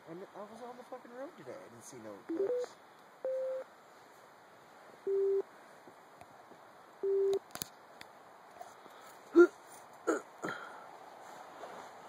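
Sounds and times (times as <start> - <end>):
short electronic beeps: 2.3 - 3.6, 5.1 - 5.4, 7.0 - 7.4.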